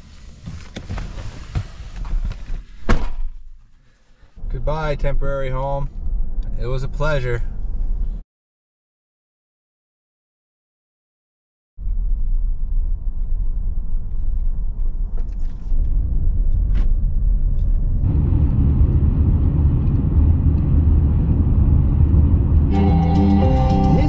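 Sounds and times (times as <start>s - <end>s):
rough gravel road noise: 0.0s - 8.2s, 11.8s - 24.0s
vehicle rumbling on dirt track: 11.8s - 24.0s.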